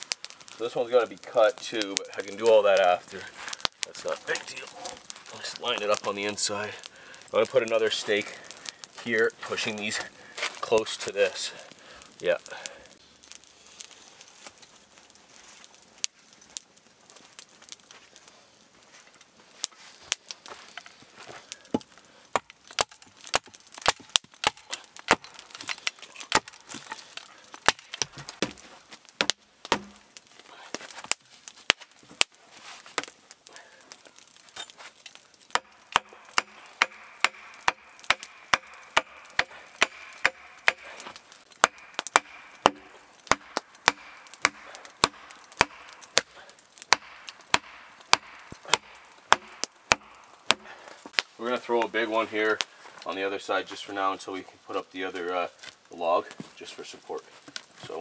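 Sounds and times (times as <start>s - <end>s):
axe striking wood: 22.4s - 27.0s, 29.2s - 30.0s, 35.5s - 41.0s, 41.6s - 46.3s, 46.9s - 50.7s.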